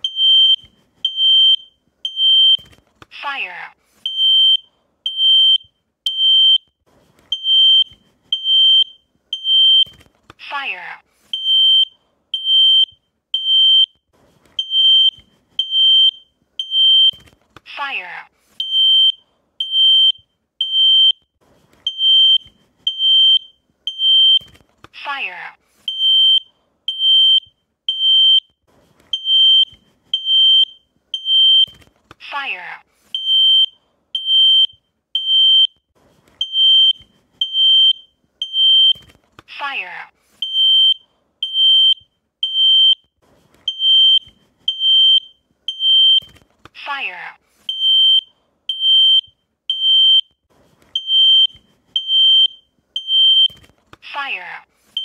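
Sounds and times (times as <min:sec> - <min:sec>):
smoke alarm beeping: 0:00.0 - 0:02.8, 0:04.0 - 0:06.7, 0:07.3 - 0:10.0, 0:11.3 - 0:14.0, 0:14.6 - 0:17.3, 0:18.6 - 0:24.6, 0:25.8 - 0:31.8, 0:33.1 - 0:35.8, 0:36.4 - 0:39.1, 0:40.4 - 0:43.1, 0:43.7 - 0:46.4, 0:47.7 - 0:50.4, 0:51.0 - 0:53.7.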